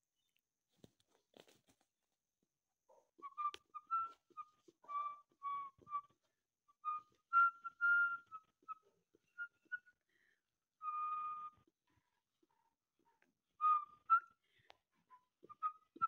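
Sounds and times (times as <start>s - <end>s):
person whistling short notes: 3.2s - 6.2s, 6.8s - 10.1s, 10.8s - 11.7s.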